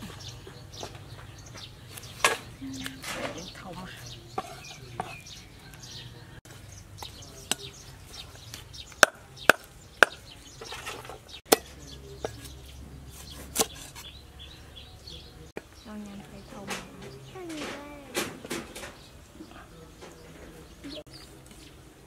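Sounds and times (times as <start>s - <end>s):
cleaver chopping on wooden block: 8.9s - 10.2s.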